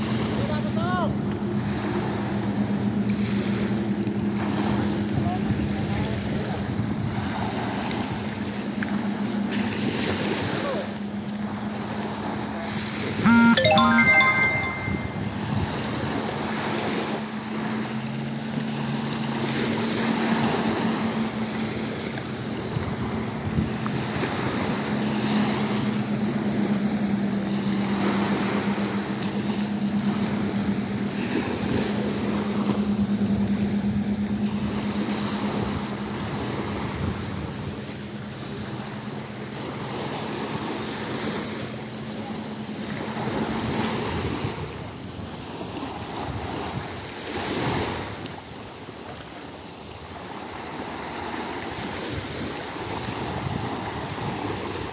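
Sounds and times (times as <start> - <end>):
speedboat engine at high speed: 0.0 - 13.2, 15.2 - 54.9
wind and water noise: 0.0 - 54.9.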